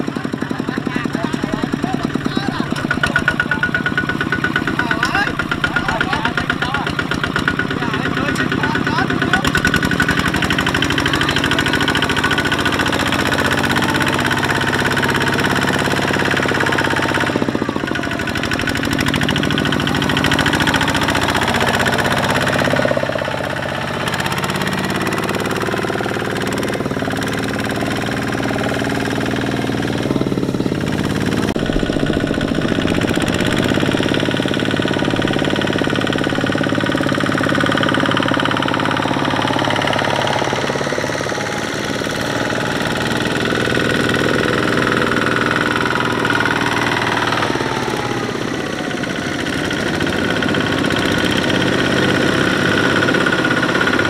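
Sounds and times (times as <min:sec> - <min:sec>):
diesel engine chugging: 0:00.0 - 0:54.0.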